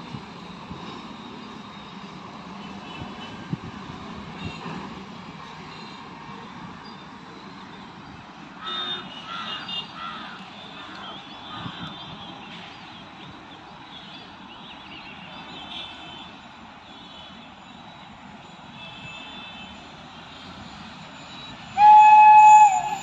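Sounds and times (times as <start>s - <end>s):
electric locomotive horn: 21.8s - 23.0s.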